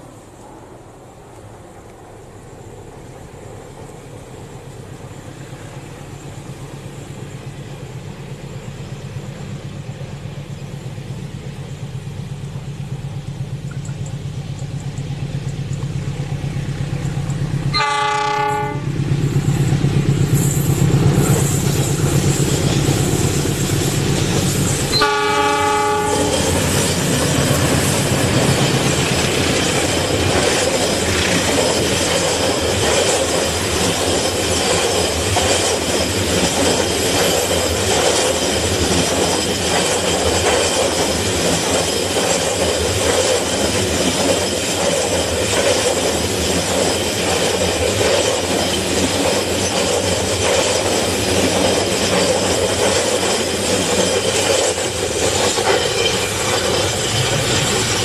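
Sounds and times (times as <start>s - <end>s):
locomotive engine hum: 0.0s - 58.0s
wheels clattering on rails: 3.0s - 58.0s
train horn blasts: 17.7s - 18.9s, 24.9s - 26.5s.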